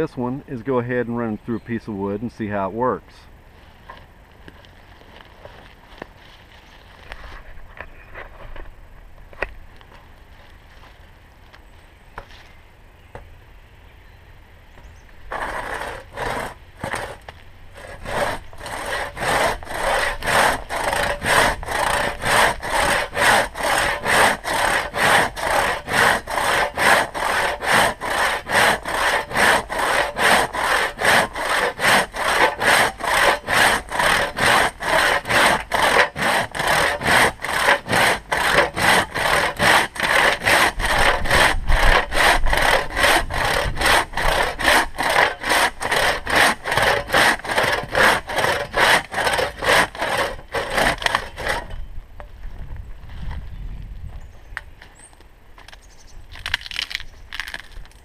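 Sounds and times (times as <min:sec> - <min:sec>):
hand saw cutting a log: 0:15.3 - 0:51.7.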